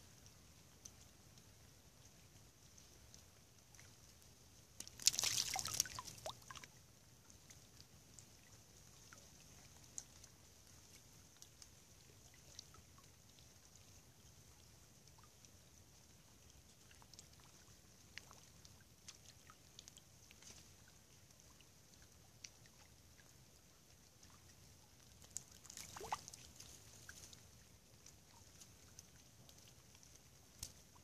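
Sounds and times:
soft ticks: 0.0s - 5.2s, 5.8s - 31.0s
soft hiss: 0.0s - 31.0s.

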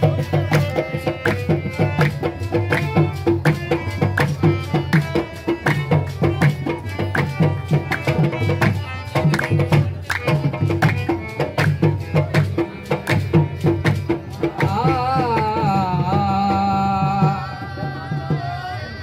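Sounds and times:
rhythmic hand clapping: 0.0s - 15.8s
harmonium melody: 0.0s - 19.0s
steady drum beat: 0.0s - 19.0s.

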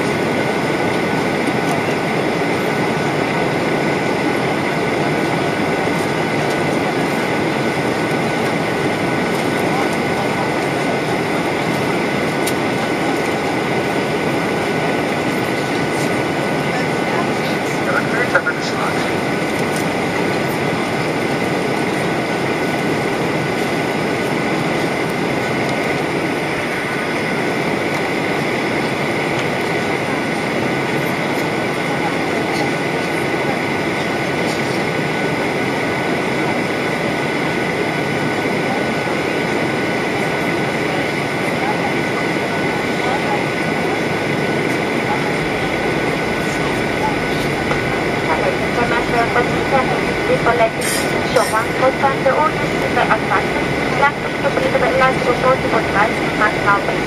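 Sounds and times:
aircraft cabin engine roar: 0.0s - 57.0s
air rushing along fuselage: 32.9s - 57.0s
high whine: 42.5s - 57.0s.

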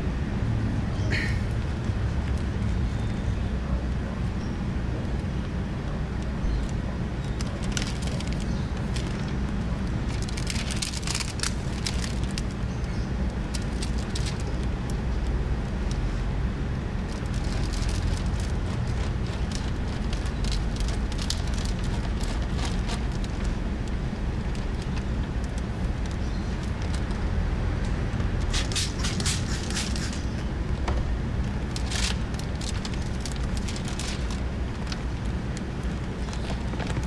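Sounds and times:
steady low rumble: 0.0s - 37.0s
plastic film crinkling and crackling: 7.2s - 12.6s, 13.3s - 15.0s, 17.0s - 27.4s, 31.4s - 37.0s.

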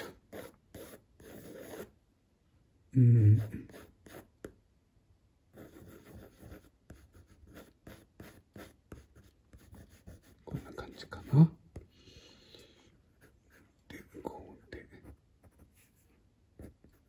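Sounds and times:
colored pencil scratching on paper: 0.0s - 1.9s, 3.3s - 4.3s, 5.5s - 11.9s, 13.1s - 17.0s
man's low utterance: 2.9s - 3.7s.

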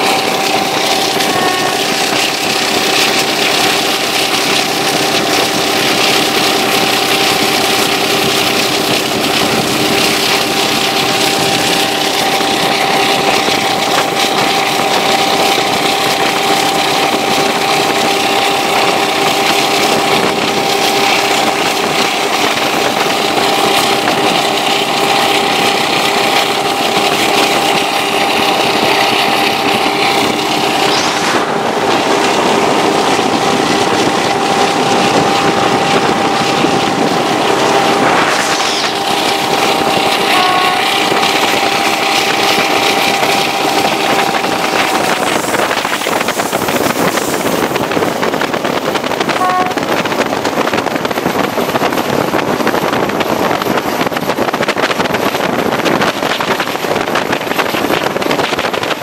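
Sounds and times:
diesel engine drone with whine: 0.0s - 59.0s
wheels on rail: 0.0s - 59.0s
passing air: 19.6s - 50.3s.

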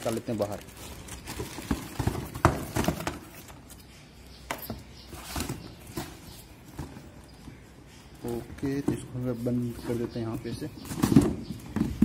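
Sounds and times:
plastic wrap rustling: 0.0s - 3.8s.

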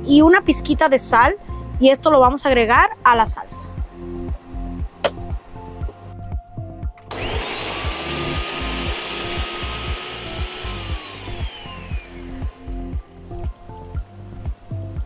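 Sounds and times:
background music with beat: 0.1s - 15.0s
blender motor whining: 7.1s - 13.2s.

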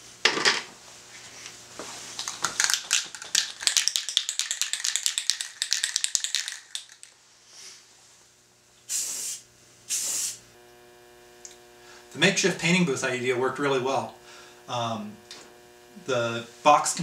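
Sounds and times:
spray can ball rattling: 2.2s - 7.2s
faint spray hiss: 8.9s - 10.4s.

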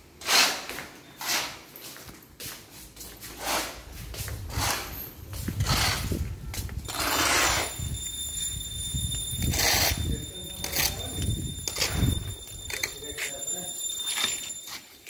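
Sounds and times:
metal shovel scraping concrete: 0.2s - 1.7s.

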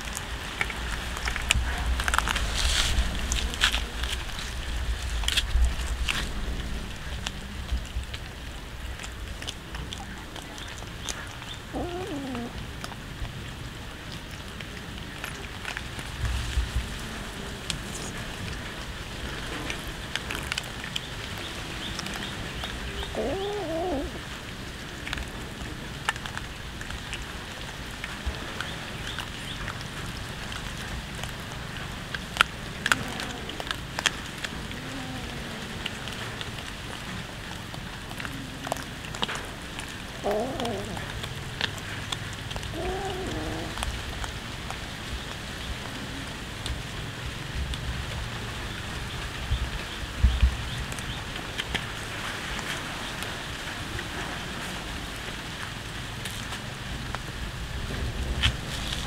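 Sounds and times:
cats chewing raw fish: 0.0s - 59.0s
cat meow: 11.7s - 12.6s, 23.1s - 24.2s, 34.7s - 35.8s, 40.2s - 41.1s, 42.7s - 43.8s.

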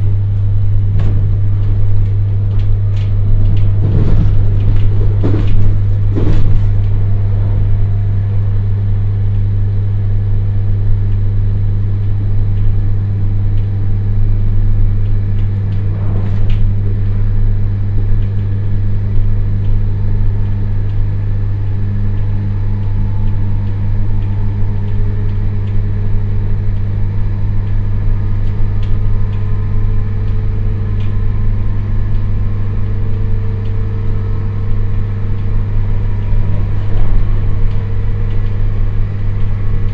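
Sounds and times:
train running rumble: 0.0s - 10.6s, 12.5s - 39.9s
low electric train hum: 0.0s - 39.9s
faint rising whine: 14.8s - 19.4s, 29.0s - 39.9s.

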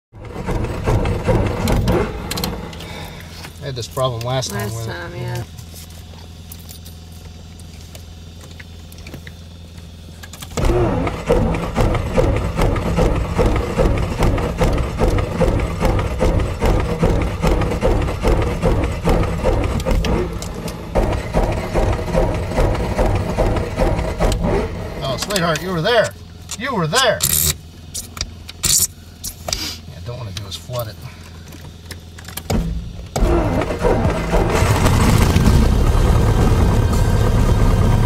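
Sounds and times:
aircraft engine cranking on starter: 0.2s - 3.5s, 10.2s - 26.6s, 33.1s - 38.0s.

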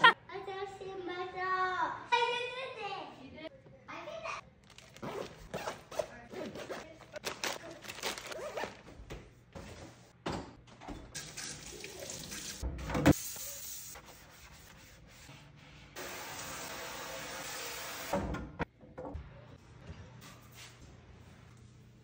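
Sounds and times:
zipper pulled: 5.0s - 6.9s, 8.2s - 8.8s.

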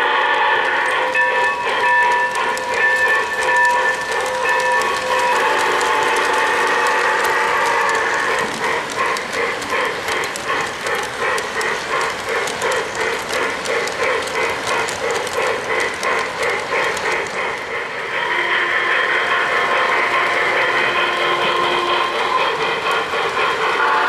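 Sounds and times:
model train rhythmic clatter: 0.0s - 24.0s
model train steady hum: 0.0s - 24.0s
wheel clicks: 1.3s - 17.6s.

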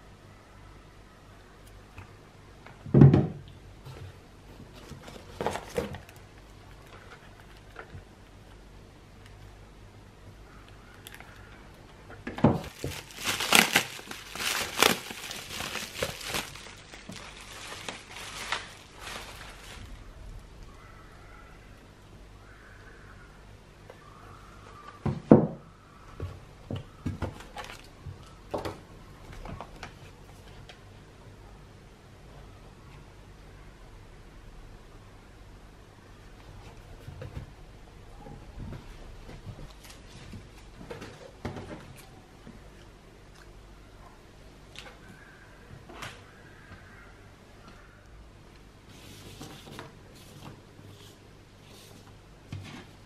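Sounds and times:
cardboard packaging rustling: 4.6s - 6.2s, 12.4s - 20.4s, 27.2s - 28.3s.

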